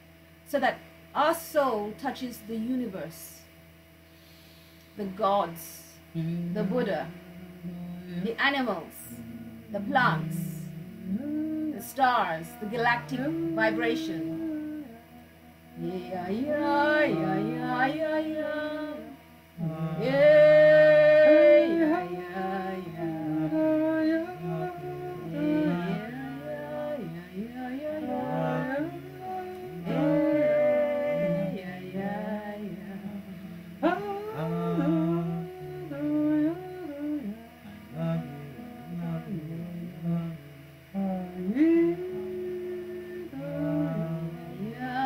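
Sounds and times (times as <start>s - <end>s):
voices chanting together: 6.2s - 36.6s.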